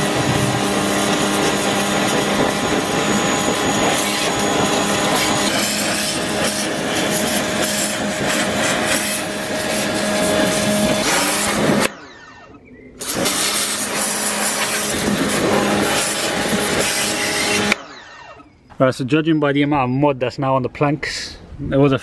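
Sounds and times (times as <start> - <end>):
water jet hissing: 0.0 - 11.8, 13.0 - 17.8
pressure washer motor humming: 0.0 - 12.0, 13.0 - 18.4.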